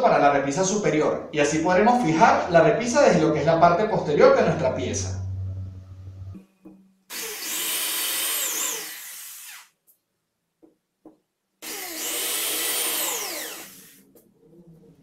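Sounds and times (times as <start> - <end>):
electric drill boring holes: 7.1 - 9.8, 11.6 - 14.0.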